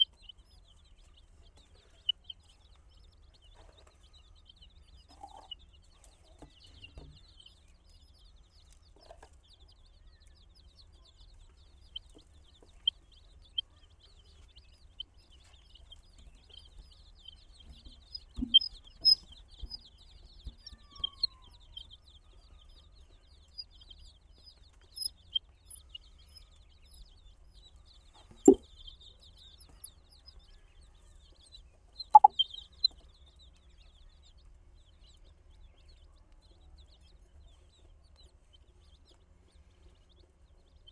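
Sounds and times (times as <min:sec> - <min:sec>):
baby chicks peeping: 0:00.0 - 0:40.9.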